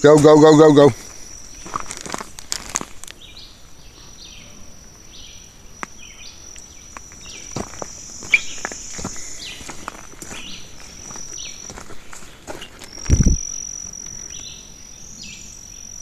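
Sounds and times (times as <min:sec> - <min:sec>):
footsteps on dirt trail: 0:00.0 - 0:04.2, 0:06.6 - 0:14.6
insects droning: 0:00.0 - 0:16.0.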